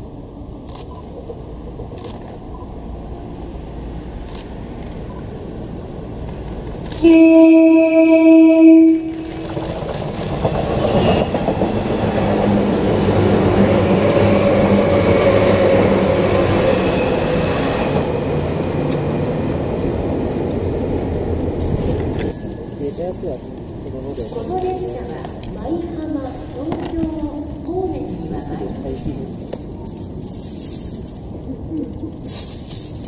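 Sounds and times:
train wheels on rails: 0.0s - 33.0s
train horn blast: 6.9s - 9.4s.

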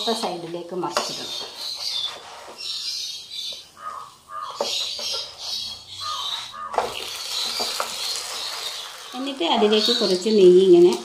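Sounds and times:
spatula scraping a frying pan: 1.0s - 3.2s, 4.5s - 10.2s.

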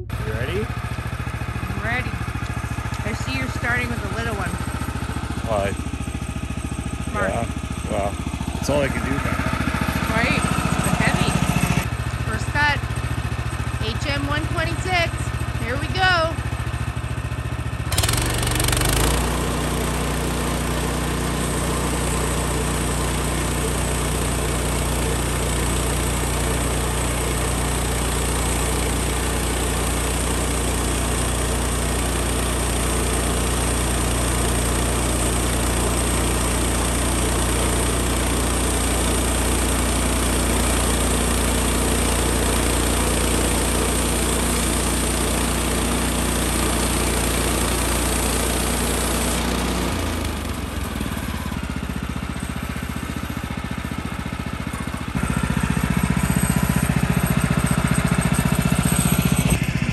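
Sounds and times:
sawmill engine running: 0.0s - 59.9s.

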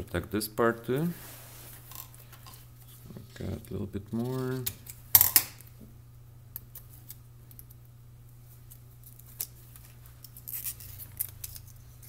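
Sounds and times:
steady low hum: 0.0s - 12.0s
foil tape crinkling: 8.6s - 12.0s.

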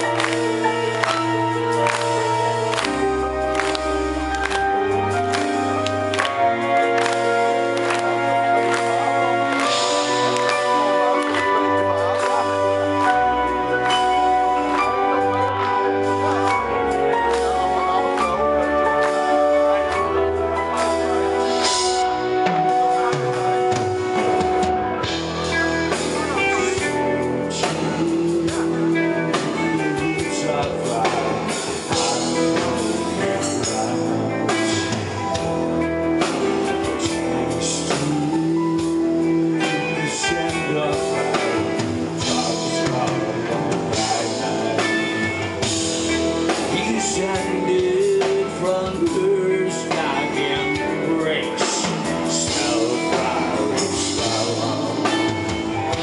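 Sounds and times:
bass guitar: 0.0s - 56.0s
drums: 0.0s - 56.0s
electric guitar: 0.0s - 56.0s
man singing lead vocals: 0.0s - 56.0s
sustained keyboard chords: 0.0s - 56.0s.

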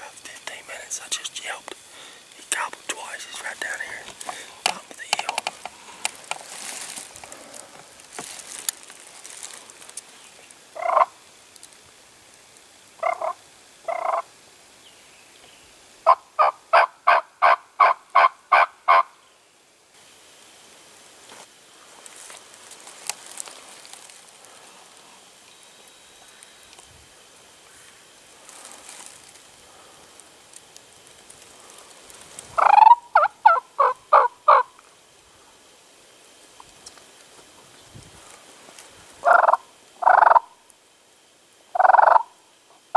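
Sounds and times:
wild turkey calling: 10.8s - 11.2s, 13.0s - 14.3s, 16.0s - 19.2s, 32.6s - 34.8s, 39.2s - 40.6s, 41.8s - 42.4s
turkey yelps: 32.6s - 34.7s, 39.2s - 40.5s.

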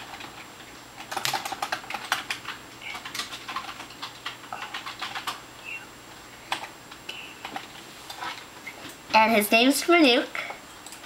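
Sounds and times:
computer keyboard typing: 0.0s - 5.8s.

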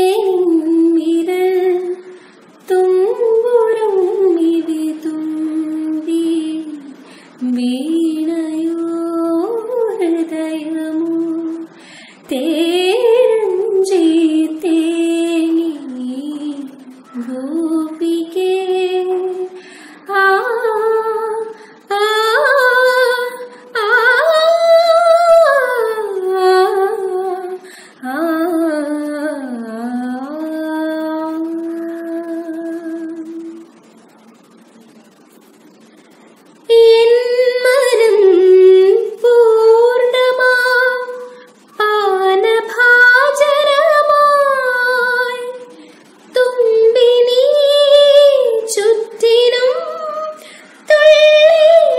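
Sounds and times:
woman singing unaccompanied: 0.0s - 51.9s.

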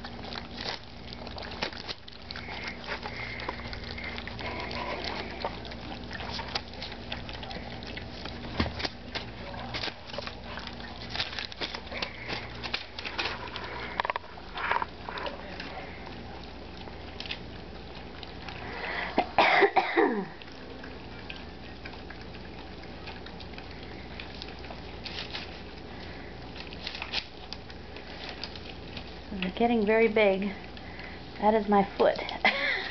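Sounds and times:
puppies eating from metal bowl: 0.0s - 32.9s.

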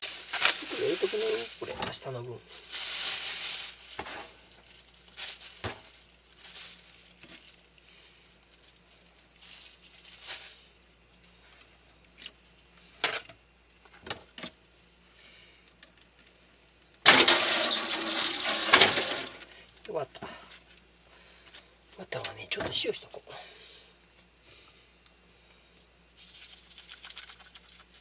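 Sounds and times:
kitchen tap running: 17.1s - 19.4s.

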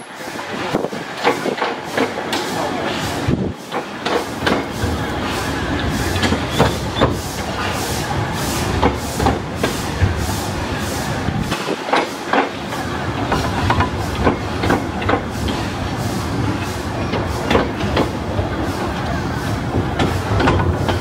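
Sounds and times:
steam locomotive exhaust beat: 0.0s - 21.0s
wheels clicking over rail joints: 11.3s - 15.8s, 16.5s - 21.0s.

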